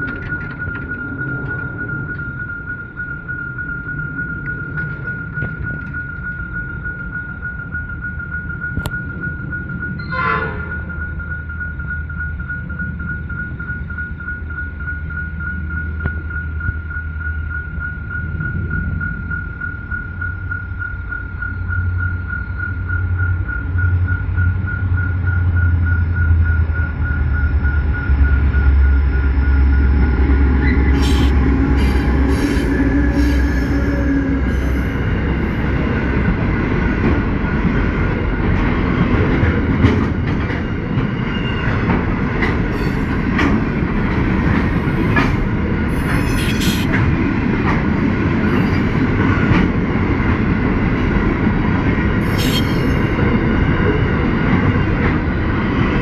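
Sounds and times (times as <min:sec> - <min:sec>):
level-crossing bell ringing: 0:00.0 - 0:25.8, 0:52.2 - 0:54.1
wheel-on-rail noise: 0:00.0 - 0:56.0
locomotive engine rumble: 0:23.1 - 0:55.6
high wheel squeals: 0:27.0 - 0:35.8, 0:42.6 - 0:43.3, 0:44.6 - 0:47.0, 0:48.4 - 0:49.2, 0:52.2 - 0:53.2.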